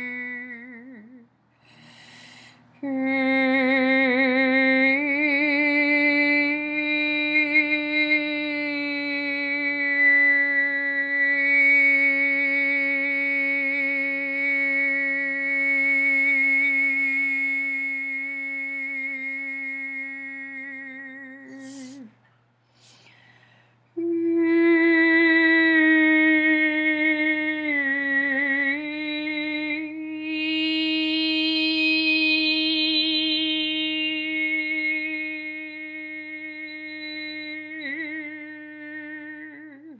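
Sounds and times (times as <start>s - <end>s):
woman toning a held note: 21.3s - 22.2s.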